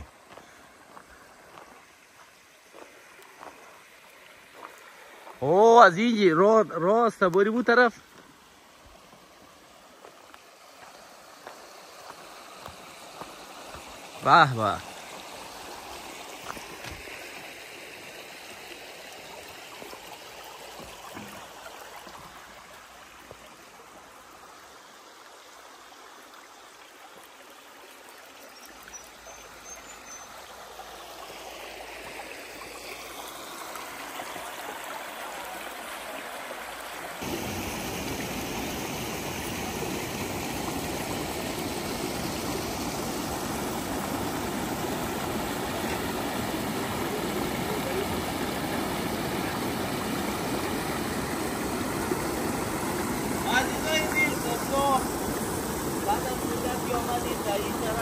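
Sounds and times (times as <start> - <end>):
water rushing over rocks: 0.0 - 58.0.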